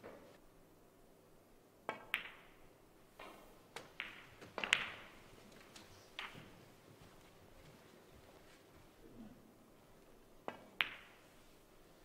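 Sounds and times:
snooker balls clicking: 1.9s - 2.6s, 3.2s - 6.7s, 10.4s - 11.4s
cue striking ball: 3.2s - 5.2s.

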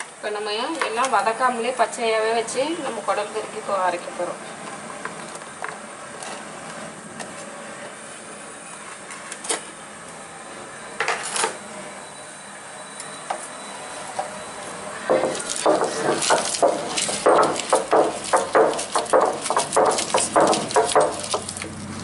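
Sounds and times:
stone-on-stone grinding: 15.1s - 21.5s.

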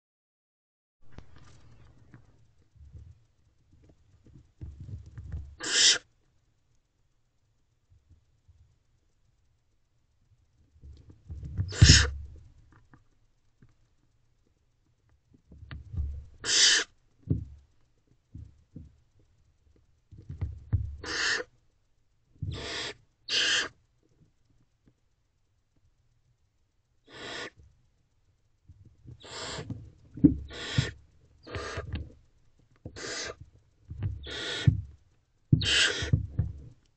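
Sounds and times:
owlets begging hisses: 5.6s - 6.0s, 22.5s - 23.7s, 27.1s - 27.6s, 29.2s - 29.7s, 30.5s - 31.8s, 33.0s - 33.4s, 34.2s - 34.7s.

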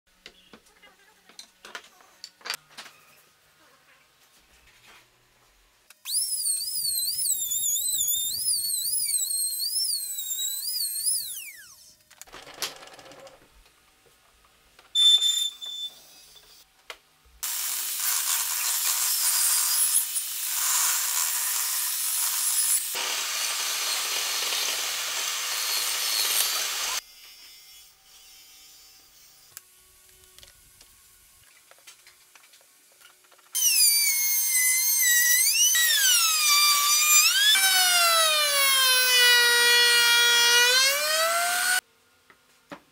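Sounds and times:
router whining: 6.0s - 11.9s, 22.1s - 27.0s, 33.6s - 41.8s
table saw cutting wood: 17.4s - 29.6s, 33.6s - 41.8s.

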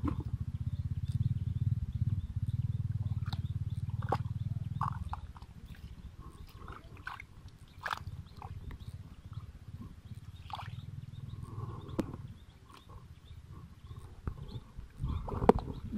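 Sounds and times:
low pulsing rumble: 0.0s - 15.9s
hands sloshing in muddy water: 3.2s - 8.6s, 10.4s - 10.8s.

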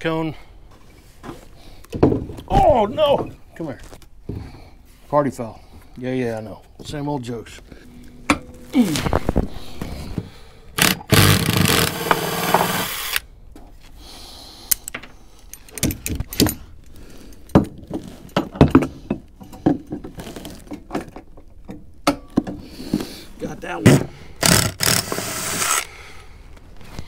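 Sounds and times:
loud rough scraping: 7.6s - 13.2s.

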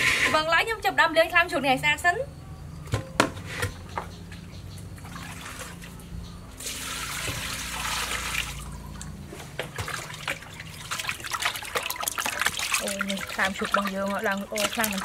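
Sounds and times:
water splashing in metal basin: 4.8s - 6.0s, 6.6s - 15.0s.

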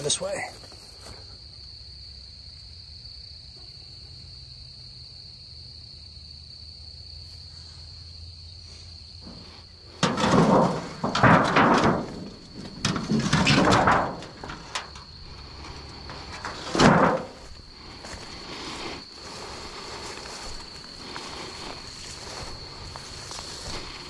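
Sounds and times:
footsteps through undergrowth: 0.0s - 1.4s, 14.3s - 24.0s
insect chorus: 0.0s - 24.0s.

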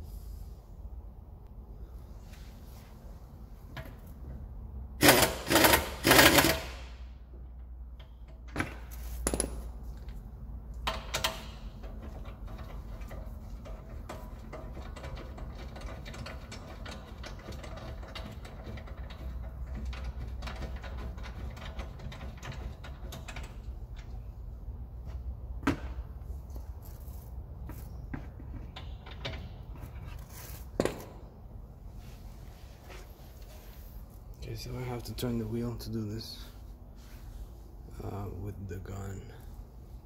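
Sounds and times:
pneumatic wrench running: 5.0s - 6.9s.

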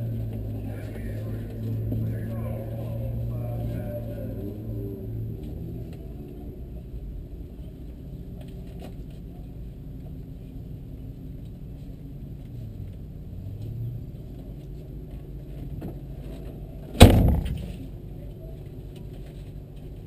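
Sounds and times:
car engine idling: 14.2s - 20.0s.

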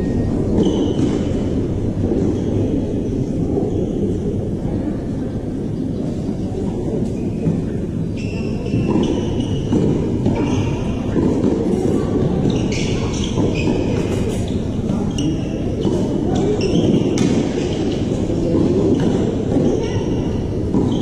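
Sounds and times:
shoes squeaking on court: 0.0s - 1.6s, 11.9s - 18.1s.

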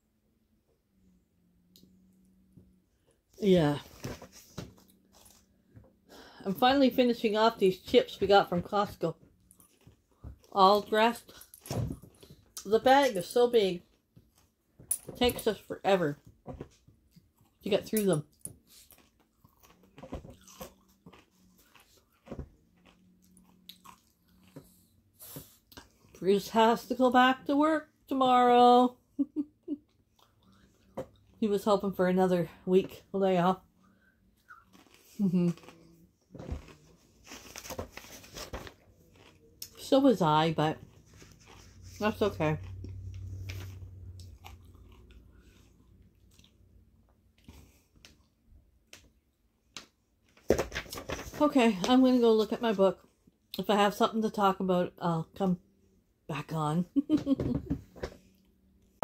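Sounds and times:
person chewing potato chips: 18.6s - 25.0s, 33.9s - 37.6s, 38.8s - 39.9s, 40.8s - 46.8s
chips crunching: 34.5s - 35.9s, 38.8s - 39.9s, 40.9s - 41.8s.

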